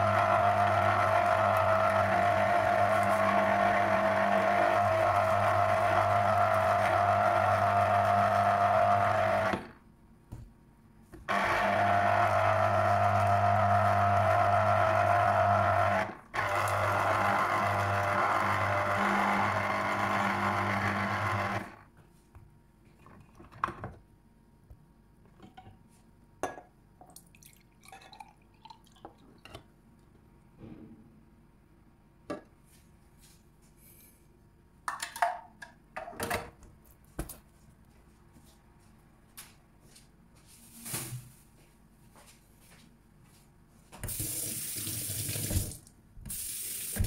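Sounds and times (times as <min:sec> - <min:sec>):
citrus juicer motor running: 0:00.0 - 0:09.8, 0:11.3 - 0:21.9.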